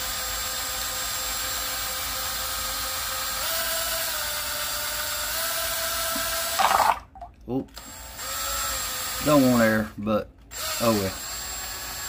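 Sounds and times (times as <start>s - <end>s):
cordless drill whining: 7.8s - 9.8s, 10.5s - 12.0s.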